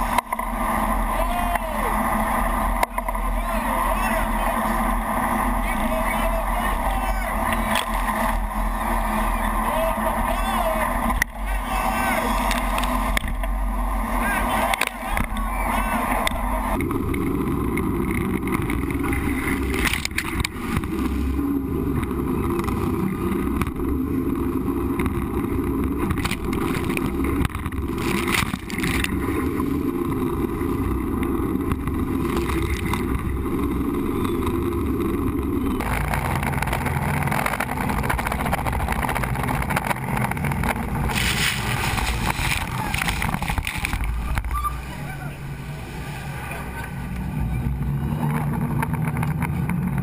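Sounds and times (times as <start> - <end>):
waves crashing over boat: 0.0 - 16.8, 35.8 - 49.2
churning water: 0.0 - 50.0
jet boat engine: 0.0 - 50.0.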